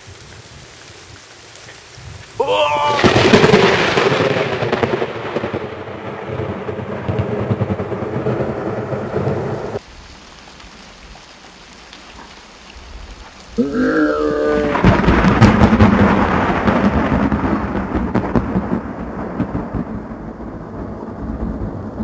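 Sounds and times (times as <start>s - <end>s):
rain hiss: 0.0s - 22.0s
thunder crackling rumble: 1.9s - 10.2s, 12.8s - 22.0s.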